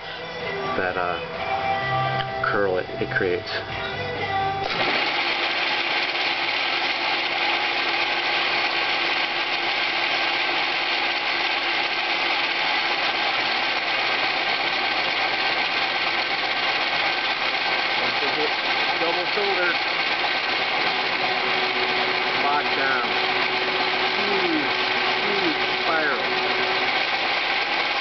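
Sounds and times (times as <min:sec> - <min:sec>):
metal lathe running: 0:04.6 - 0:28.0
cutting bit hiss and chatter: 0:18.0 - 0:26.6.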